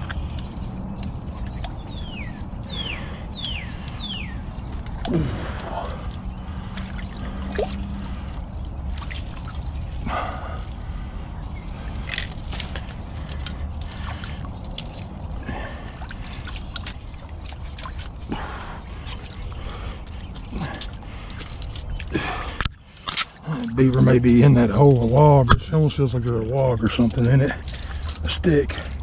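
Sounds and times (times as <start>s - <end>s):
muddy water sloshing: 0.0s - 29.0s.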